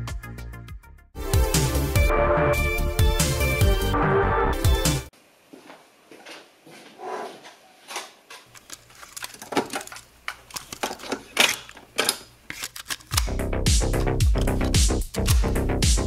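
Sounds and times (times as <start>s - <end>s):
electronic music: 0.0s - 5.1s, 13.2s - 16.0s.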